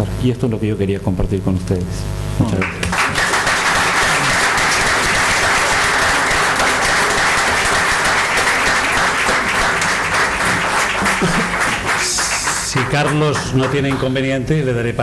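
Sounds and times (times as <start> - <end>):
audience applauding: 2.6 - 14.4.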